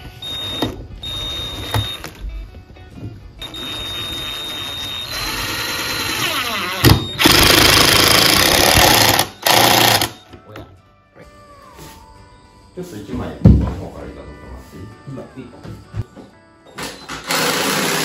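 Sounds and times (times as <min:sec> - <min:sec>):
impact driver driving screws: 0:05.4 - 0:10.2.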